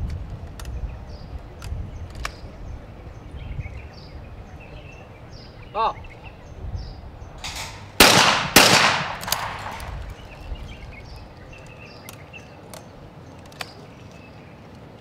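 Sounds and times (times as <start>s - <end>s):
faint clicks: 0.0s - 0.8s, 1.6s - 2.5s, 9.2s - 14.9s
shotgun shots echoing: 7.4s - 10.1s.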